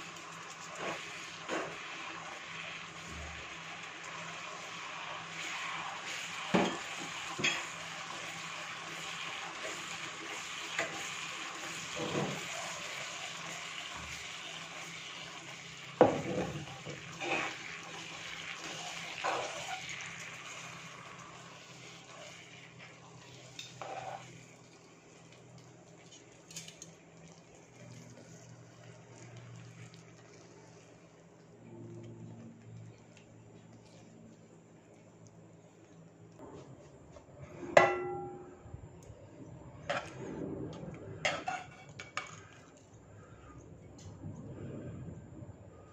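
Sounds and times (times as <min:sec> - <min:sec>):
sauce sizzling in a frying pan: 0:00.0 - 0:31.3.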